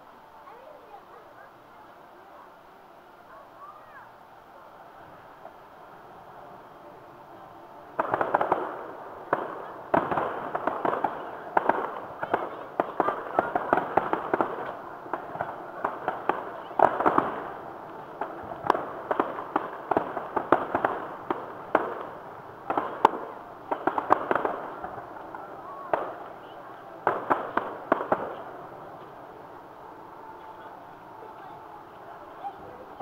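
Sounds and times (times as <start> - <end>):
distant fireworks bangs: 7.8 - 33.0.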